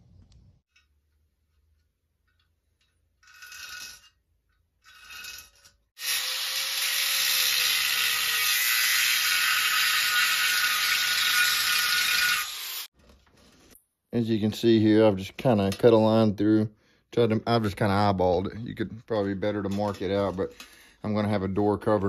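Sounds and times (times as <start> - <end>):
angle grinder cutting steel: 4.8 - 12.9.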